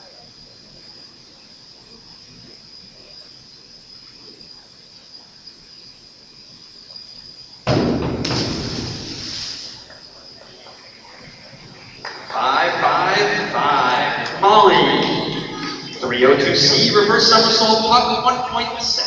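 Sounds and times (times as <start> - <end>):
faint high whine: 0.0 - 19.0
diver splashing into pool: 7.7 - 9.9.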